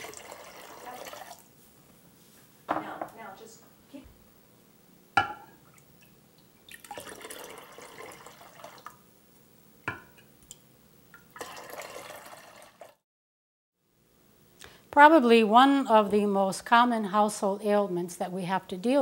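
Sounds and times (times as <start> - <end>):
water poured into glass bowl: 0.0 - 1.5, 6.7 - 9.0, 11.2 - 13.0.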